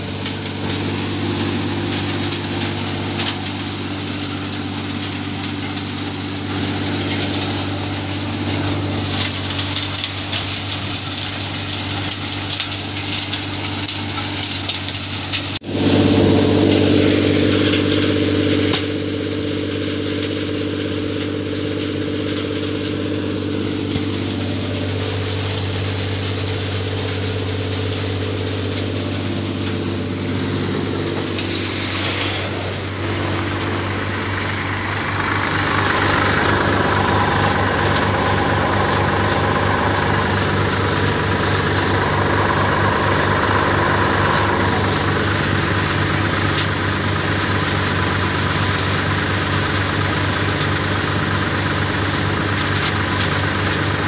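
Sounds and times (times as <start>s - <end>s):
thresher rattling: 0.0s - 54.0s
tractor diesel engine: 0.0s - 54.0s.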